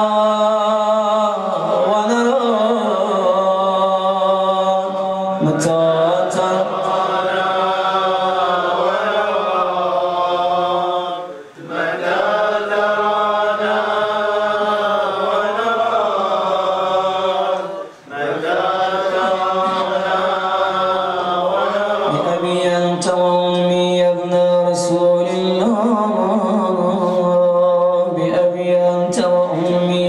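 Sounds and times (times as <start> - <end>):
man chanting a lament: 0.0 - 30.0.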